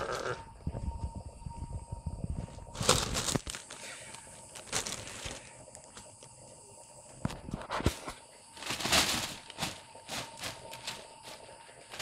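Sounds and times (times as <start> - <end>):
plastic bag crinkling: 2.8 - 5.5, 8.6 - 12.0.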